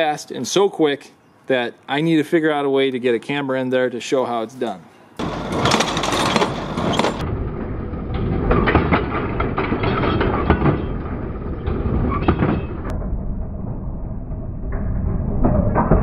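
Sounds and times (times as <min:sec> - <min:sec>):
sharp metal clanks: 0:05.2 - 0:07.3
baler mechanical clatter: 0:05.2 - 0:16.0.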